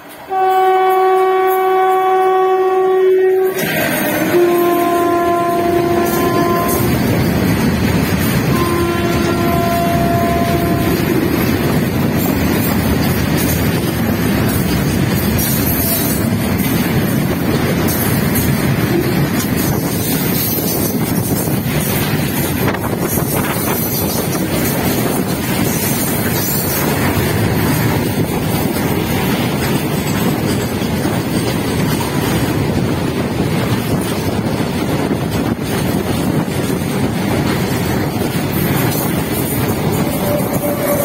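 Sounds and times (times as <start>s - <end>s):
train wheels rumbling on rail: 0.0s - 41.0s
wind buffeting microphone: 3.6s - 41.0s.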